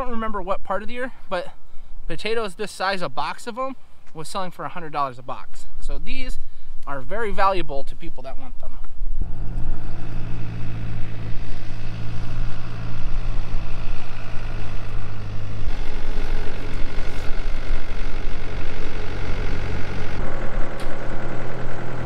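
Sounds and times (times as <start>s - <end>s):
tractor diesel engine running: 9.1s - 22.0s.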